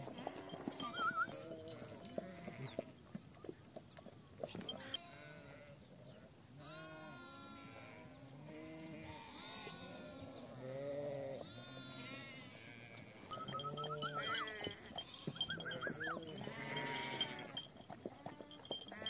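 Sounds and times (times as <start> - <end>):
livestock bells jingling: 0.0 - 2.8, 4.4 - 5.2, 13.2 - 19.0
sheep bleating: 4.7 - 5.8, 6.6 - 17.7, 18.3 - 19.0.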